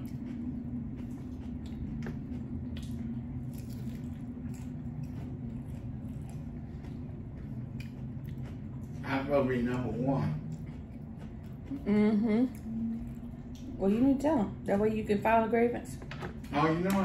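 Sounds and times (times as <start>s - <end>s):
person chewing with wet smacks: 0.0s - 14.1s
low hum: 0.0s - 17.0s.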